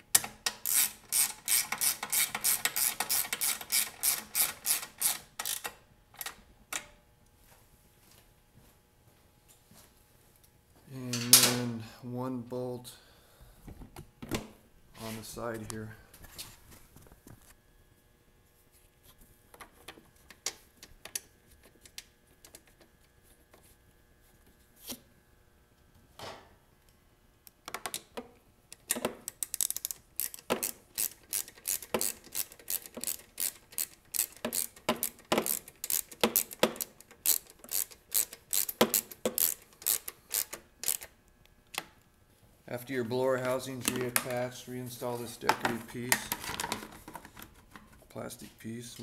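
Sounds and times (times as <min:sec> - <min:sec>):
ratchet clicking: 0:00.2 - 0:05.7, 0:29.3 - 0:41.1.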